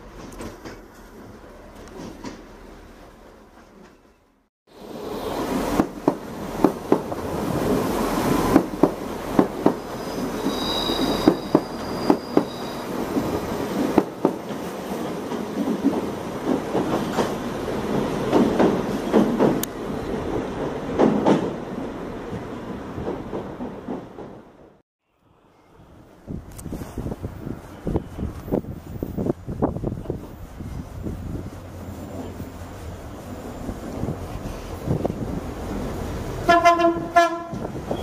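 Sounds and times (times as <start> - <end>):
wheels clicking over rail joints: 0.0 - 2.6
train wheels rushing on rail: 0.0 - 24.8, 25.9 - 38.0
high-pitched wheel squeal: 9.8 - 13.0.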